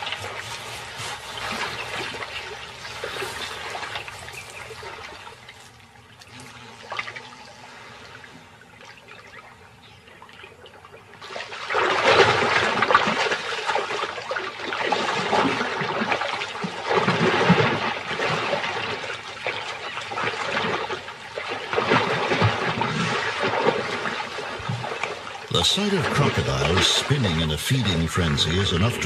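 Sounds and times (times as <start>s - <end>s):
crocodiles thrashing in water: 11.2s - 27.5s.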